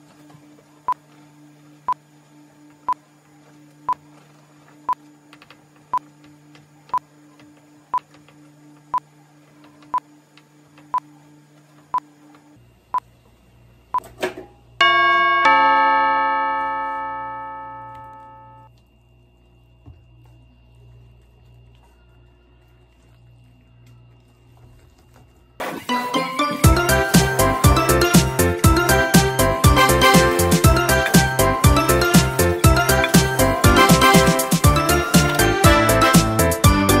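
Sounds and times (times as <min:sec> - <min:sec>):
low steady hum: 0:12.6 - 0:25.6
bell-like chime chord: 0:14.8 - 0:18.7.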